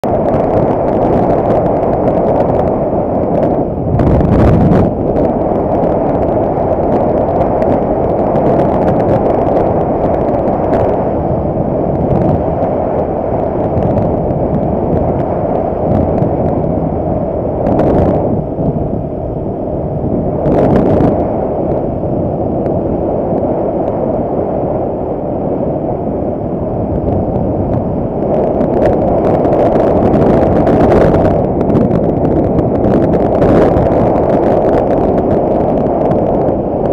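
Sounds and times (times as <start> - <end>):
road noise: 0.0 - 36.9
wind buffeting microphone: 0.0 - 36.9.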